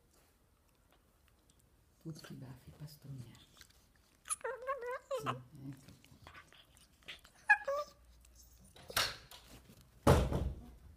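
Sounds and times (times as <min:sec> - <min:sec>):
dog whining: 0:04.2 - 0:08.8
rustling thump: 0:09.4 - 0:10.8.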